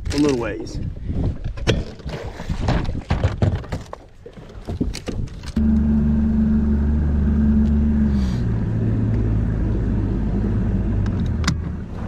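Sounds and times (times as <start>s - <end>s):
outboard motor droning: 5.6s - 11.0s.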